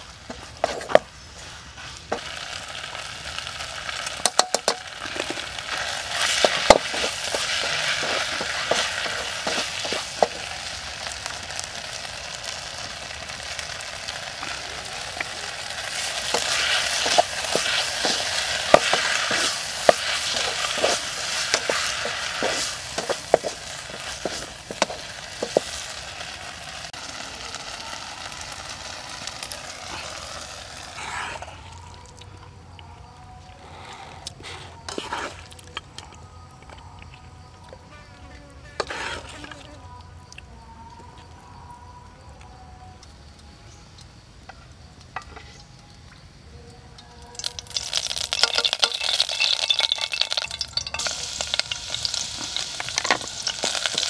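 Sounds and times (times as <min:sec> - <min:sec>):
noodles sizzling in a pot: 0:00.0 - 0:32.2, 0:34.4 - 0:35.8, 0:38.6 - 0:40.2, 0:46.9 - 0:54.0
wooden spatula scraping a pot: 0:05.0 - 0:10.5, 0:15.8 - 0:26.0, 0:34.4 - 0:35.6, 0:38.8 - 0:39.6.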